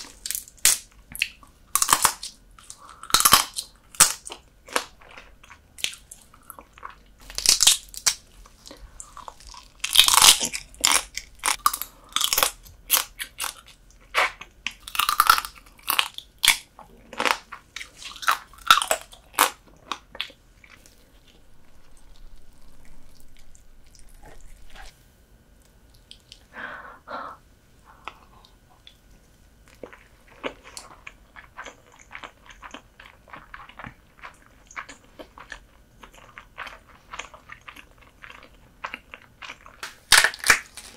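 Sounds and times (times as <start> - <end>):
crab shell crunching in mouth: 0.0 - 24.9, 29.7 - 40.9
chewing: 8.4 - 25.0, 28.0 - 39.8.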